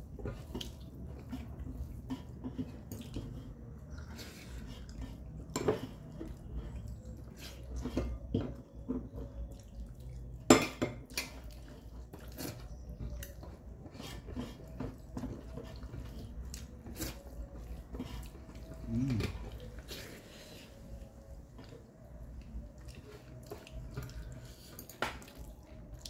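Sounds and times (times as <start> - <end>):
fingers mixing rice on metal plate: 0.1 - 9.7, 11.1 - 21.8.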